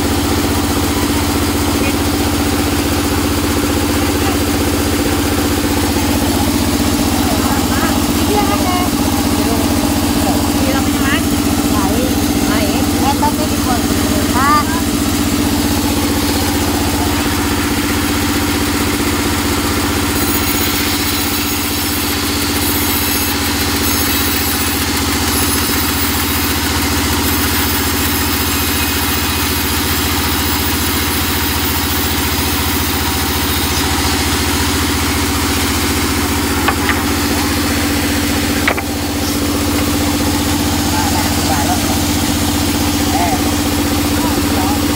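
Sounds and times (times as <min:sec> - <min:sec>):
band saw humming: 0:00.0 - 0:44.9
saw blade high hiss: 0:01.2 - 0:44.5.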